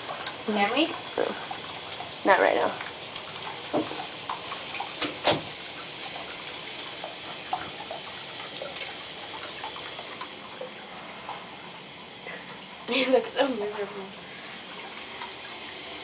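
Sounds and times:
small water splashes: 0:00.0 - 0:11.5
tap running into bathtub: 0:00.0 - 0:11.6.

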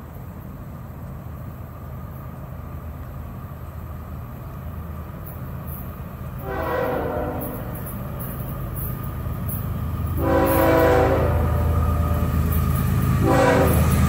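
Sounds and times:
low locomotive rumble: 0:00.0 - 0:14.0
locomotive air horn blast: 0:06.4 - 0:07.9, 0:10.2 - 0:12.3, 0:13.2 - 0:14.0.

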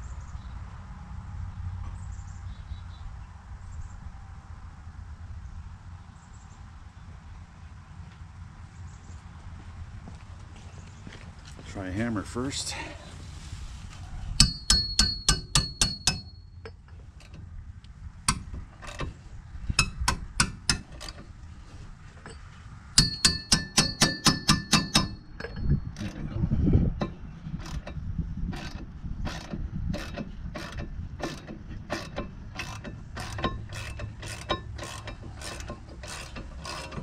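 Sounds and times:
hammer striking metal: 0:14.4 - 0:16.5, 0:19.8 - 0:21.2, 0:23.0 - 0:25.7.

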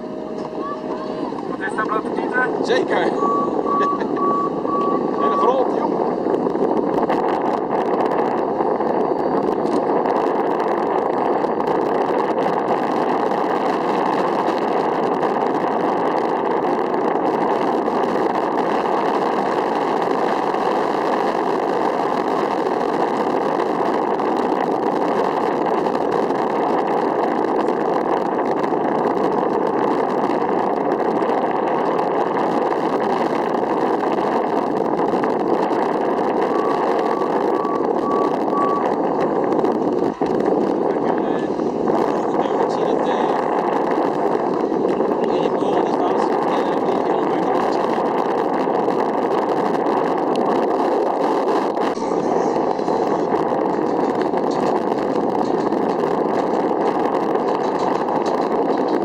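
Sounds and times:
engine-like drone: 0:00.0 - 0:59.0
vehicle reversing beeps: 0:03.0 - 0:05.8, 0:08.8 - 0:09.7, 0:36.4 - 0:39.0.

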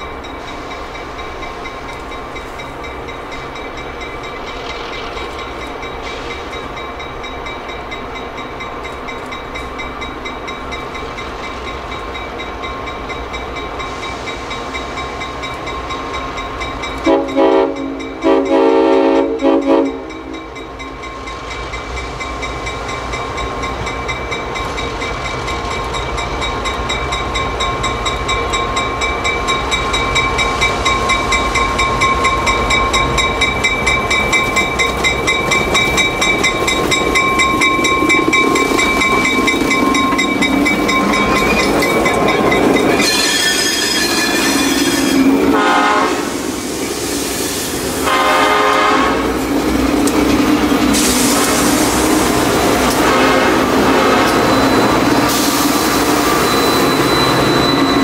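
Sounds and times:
locomotive bell ringing: 0:00.0 - 0:46.2, 0:51.8 - 0:58.0
air horn blasts: 0:17.0 - 0:20.4, 0:45.5 - 0:46.4, 0:48.0 - 0:49.3, 0:53.0 - 0:54.4.

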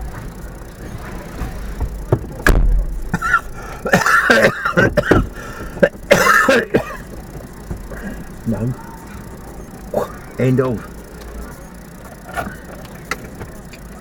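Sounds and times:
person coughing: 0:03.1 - 0:07.1.

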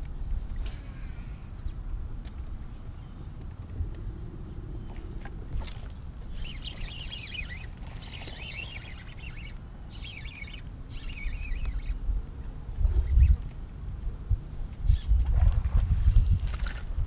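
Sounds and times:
low wind rumble: 0:00.0 - 0:17.0
birds chirping: 0:06.3 - 0:13.4.

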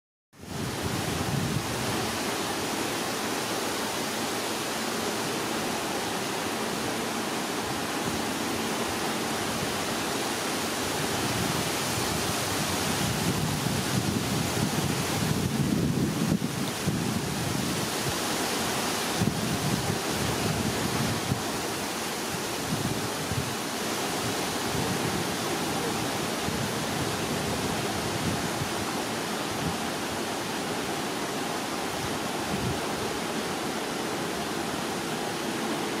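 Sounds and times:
low wind buffeting: 0:00.4 - 0:02.8, 0:07.3 - 0:33.9
wind blowing on microphone: 0:00.4 - 0:03.0, 0:07.7 - 0:30.8, 0:31.9 - 0:33.3.

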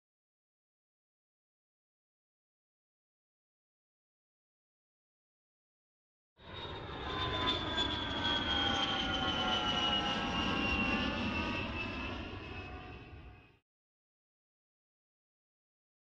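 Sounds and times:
jet airliner flyover: 0:06.4 - 0:13.6.

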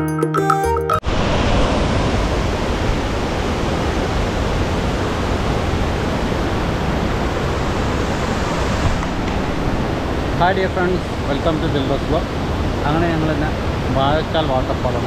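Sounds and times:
waterfall rushing: 0:01.0 - 0:15.0.

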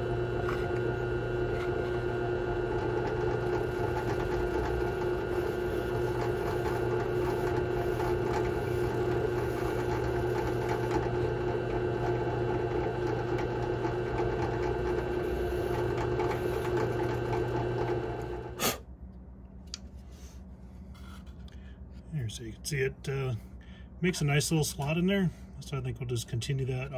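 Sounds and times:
drill press milling plastic: 0:00.0 - 0:18.7
faint handling noises: 0:19.4 - 0:22.3.

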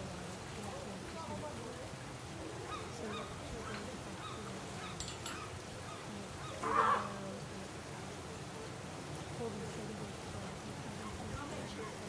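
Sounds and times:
elephant seal call: 0:06.5 - 0:07.2.

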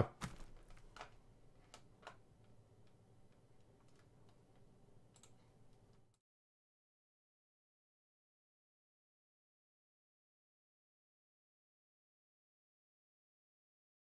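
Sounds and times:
soft clicks: 0:00.6 - 0:06.2.

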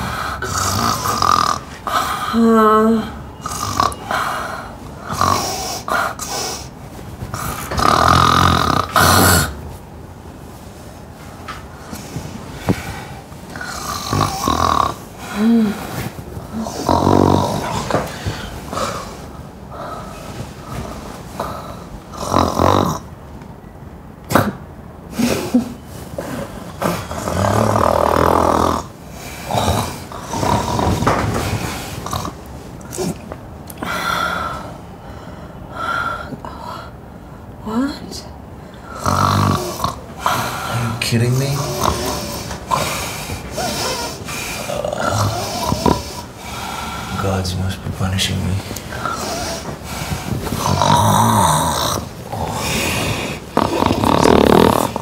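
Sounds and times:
woman snoring loudly: 0:00.0 - 0:06.5, 0:07.3 - 0:09.6, 0:13.6 - 0:19.2, 0:21.4 - 0:23.1, 0:26.8 - 0:32.4, 0:38.8 - 0:47.3, 0:48.9 - 0:55.0.

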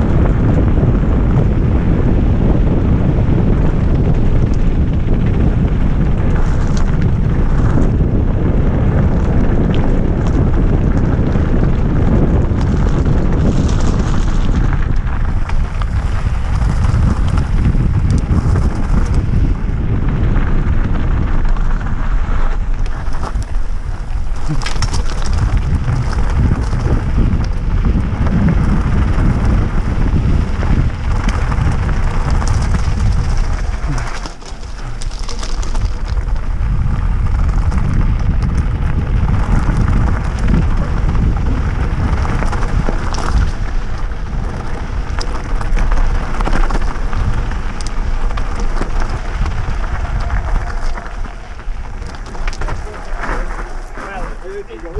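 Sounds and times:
bike clattering: 0:00.0 - 0:54.9
bike tyres crunching over stones: 0:00.0 - 0:54.9
wind buffeting microphone: 0:00.0 - 0:54.9.

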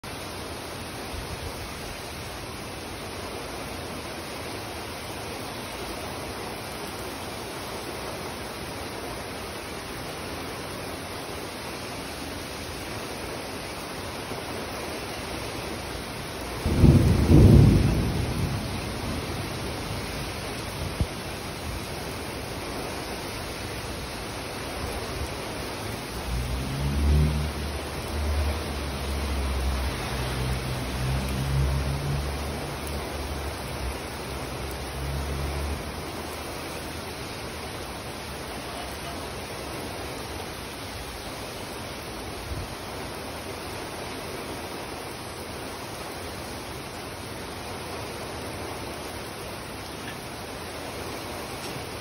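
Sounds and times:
heavy rain on pavement: 0:00.0 - 0:52.0
thunder rumbling: 0:16.4 - 0:22.5, 0:24.8 - 0:36.4.

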